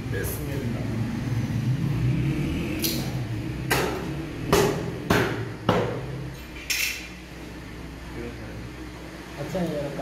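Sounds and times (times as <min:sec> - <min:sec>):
sharp knocks: 0:03.7 - 0:06.1.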